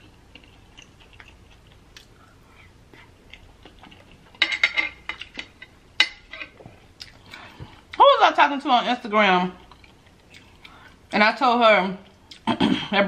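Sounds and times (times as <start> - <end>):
quiet chewing noodles: 0.0 - 4.4.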